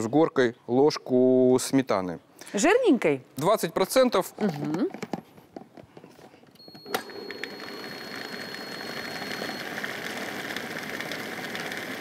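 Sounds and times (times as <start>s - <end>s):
food processor running: 7.0s - 12.0s.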